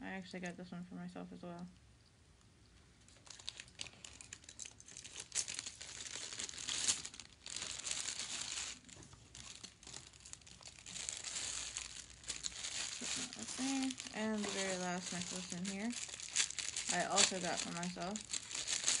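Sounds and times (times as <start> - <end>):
plastic packaging crinkling: 3.0 - 19.0.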